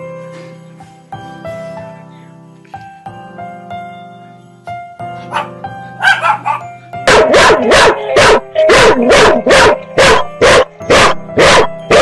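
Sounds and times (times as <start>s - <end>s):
background music: 0.0s - 12.0s
dog barking: 5.3s - 12.0s
dog yipping: 5.3s - 12.0s.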